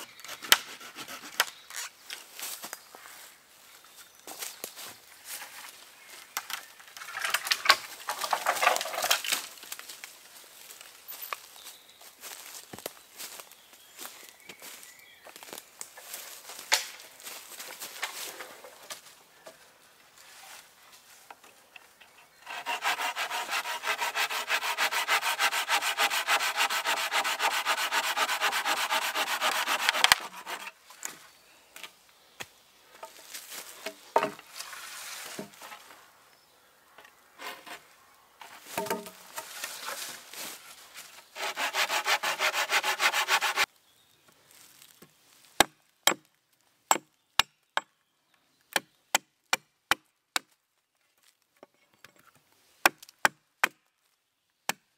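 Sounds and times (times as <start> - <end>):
saw cutting wood: 0.0 - 1.4, 22.4 - 30.7, 41.3 - 43.7
hatchet chopping wood: 45.6 - 46.3, 52.9 - 53.8.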